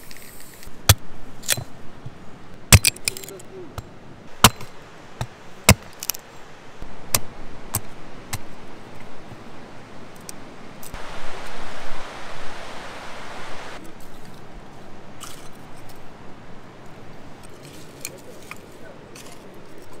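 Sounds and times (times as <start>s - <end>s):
steady hiss: 3.6s - 13.8s.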